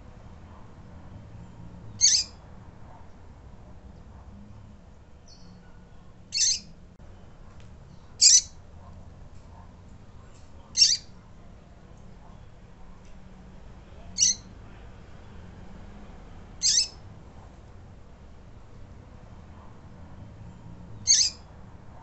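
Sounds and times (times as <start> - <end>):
bird peeping: 2.0 - 2.4, 5.3 - 6.7, 7.9 - 8.6, 10.7 - 11.1, 14.2 - 14.5, 16.6 - 17.0, 21.0 - 21.4.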